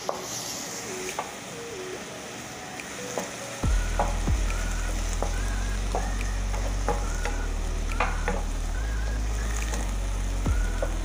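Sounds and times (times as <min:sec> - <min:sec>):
steady low hum: 0:03.6 - 0:11.0.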